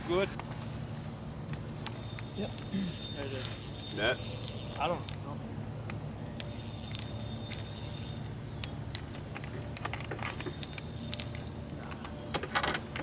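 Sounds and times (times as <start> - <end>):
steady low hum: 0.0 - 13.0
fishing reel whirring and clicking: 1.9 - 5.4, 6.1 - 12.1.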